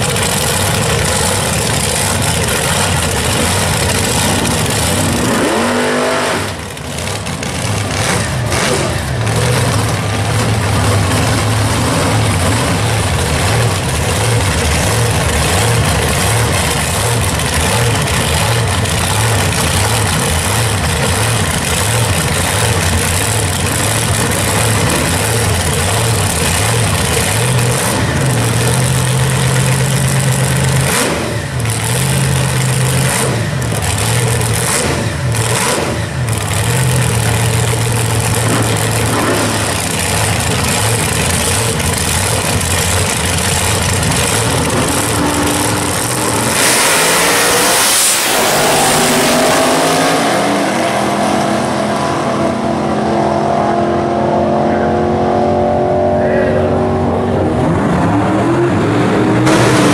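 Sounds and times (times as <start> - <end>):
drag racing engines idling lumpily: 0.0 - 47.3
engines revving and accelerating: 0.0 - 59.9.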